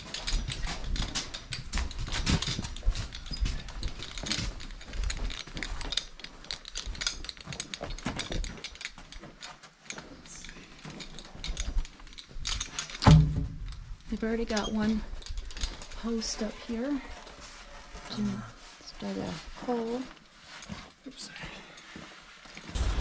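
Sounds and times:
clothing rustling against camera: 0.0 - 22.8
low rumble: 22.8 - 23.0.

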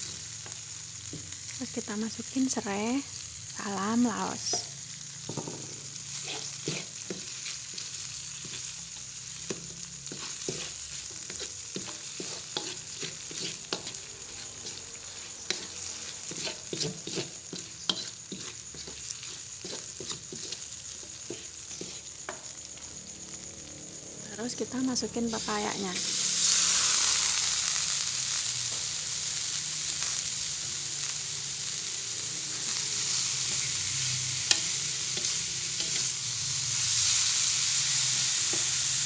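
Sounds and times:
paste sizzling in oil: 0.0 - 39.0
spoon scraping a wok: 4.4 - 22.5, 32.6 - 37.3.

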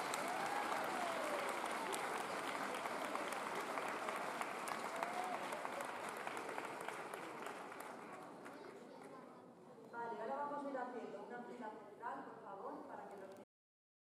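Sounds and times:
crowd applauding: 0.0 - 9.1.

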